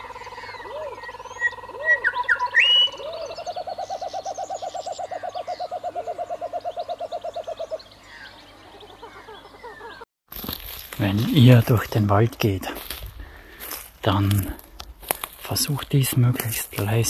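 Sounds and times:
low hooting calls: 0.0 - 10.0
bird chirps and whistles: 1.9 - 3.1.

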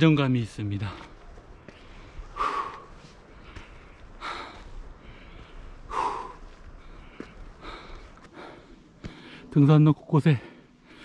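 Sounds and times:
person breathing hard: 1.7 - 9.5.

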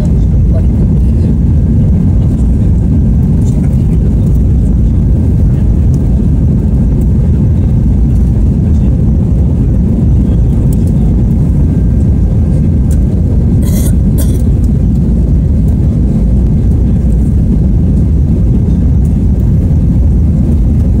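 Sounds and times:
airplane cabin engine rumble: 0.0 - 21.0.

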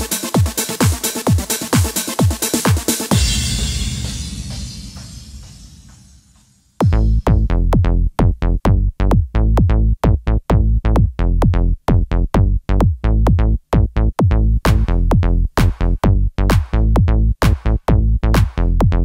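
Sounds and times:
electronic music with drum machine: 0.0 - 7.9, 12.4 - 19.0.

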